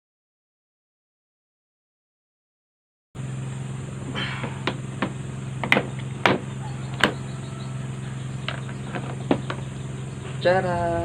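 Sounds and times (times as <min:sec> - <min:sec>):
steady low hum: 0:03.2 - 0:11.0.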